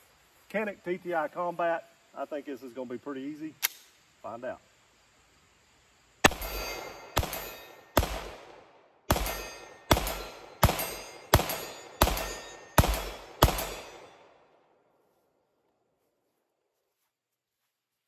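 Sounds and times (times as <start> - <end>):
pistol shots: 6.2 - 14.3
distant steel plate ringing: 6.3 - 8.0, 9.1 - 14.3.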